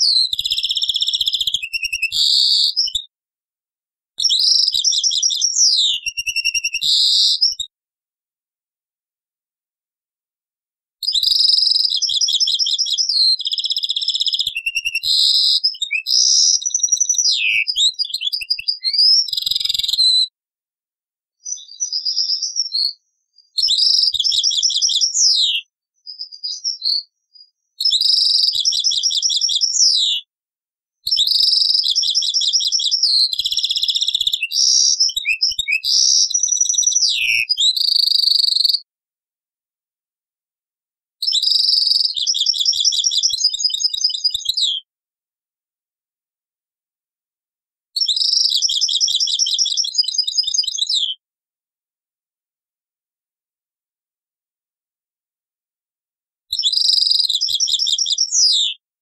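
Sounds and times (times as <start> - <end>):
goldfinch song: 0.0 - 3.1, 4.2 - 7.7, 11.0 - 20.3, 21.4 - 30.3, 31.1 - 38.8, 41.2 - 44.9, 48.0 - 51.2, 56.5 - 58.8.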